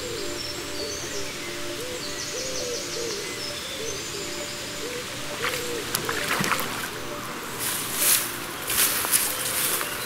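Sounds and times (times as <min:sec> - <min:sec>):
fish splashing in water: 0:05.4 - 0:07.0.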